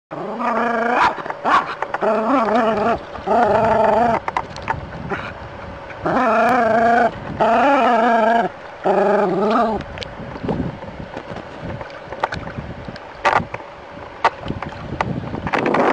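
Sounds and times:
dog howling: 0.2s - 4.2s, 6.1s - 9.8s.

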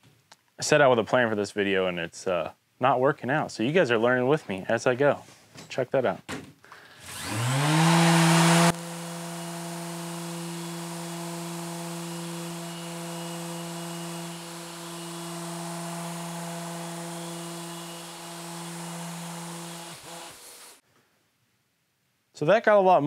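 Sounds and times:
electric sander running: 7.0s - 20.8s.

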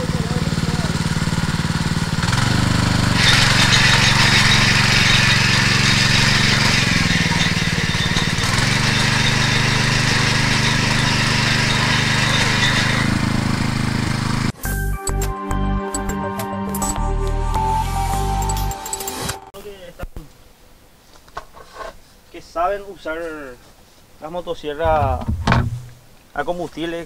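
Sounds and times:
small engine running: 0.0s - 14.6s
tines churning dry soil: 0.0s - 14.6s.

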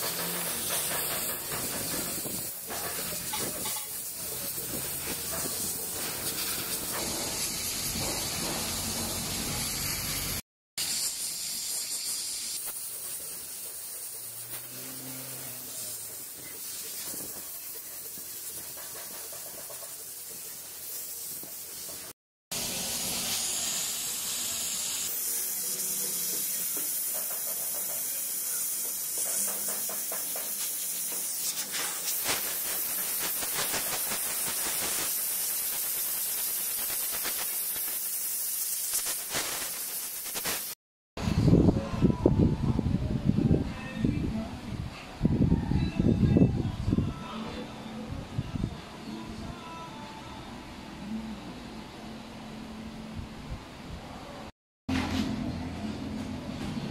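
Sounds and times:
steam cleaner hissing: 0.0s - 40.8s
quick crackles: 31.5s - 40.8s.

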